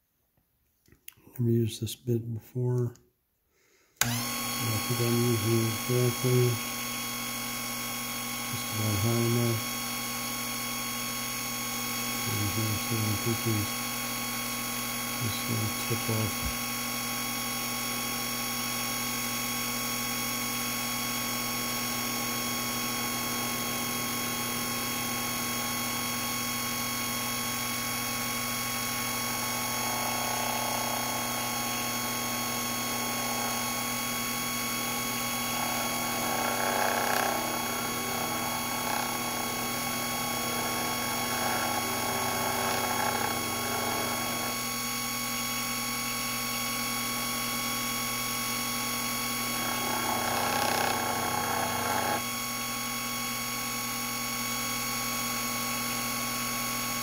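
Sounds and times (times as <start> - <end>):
lathe motor whine: 4.0 - 57.0
cutting tool scraping metal: 28.6 - 44.7, 49.4 - 52.3.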